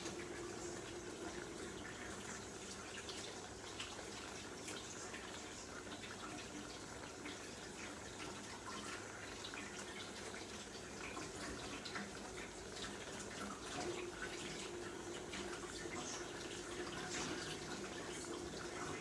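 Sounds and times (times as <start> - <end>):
faint steady hum: 0.0 - 19.0
sauce simmering in a pan: 0.0 - 19.0
water boiling in a pot: 0.0 - 19.0.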